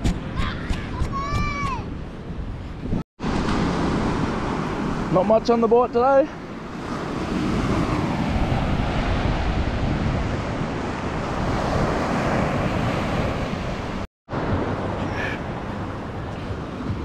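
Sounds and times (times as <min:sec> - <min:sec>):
wind buffeting microphone: 0:00.0 - 0:05.5, 0:06.4 - 0:17.0
surf breaking on beach: 0:03.2 - 0:17.0.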